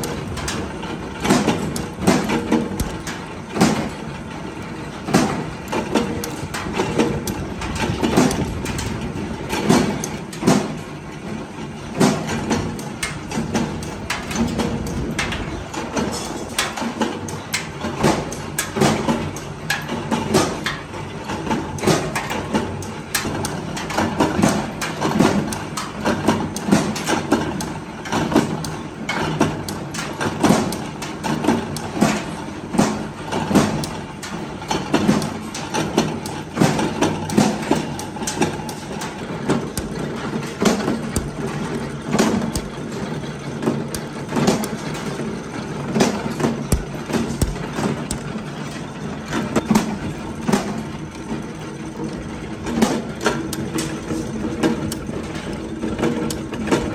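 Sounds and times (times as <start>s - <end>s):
press ram stamping metal: 0.0s - 4.4s, 5.0s - 10.8s, 21.8s - 50.8s.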